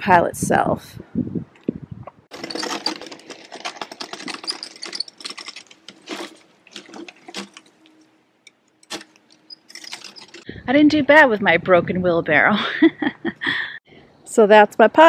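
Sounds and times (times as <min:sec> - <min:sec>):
wheelbarrow of sticks crackling: 0:02.3 - 0:08.0, 0:08.8 - 0:10.5.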